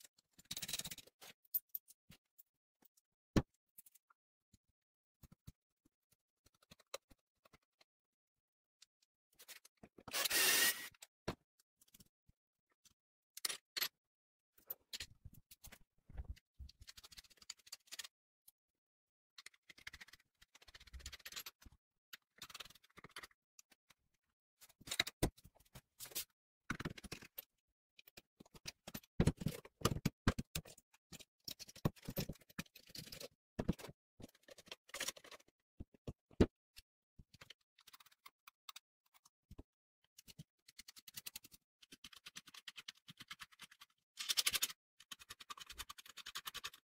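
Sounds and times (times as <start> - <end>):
cordless drill whirring: 10.1 - 10.9.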